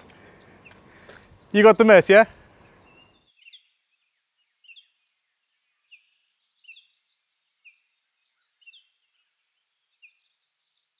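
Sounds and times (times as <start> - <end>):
birds chirping: 0.0 - 10.9.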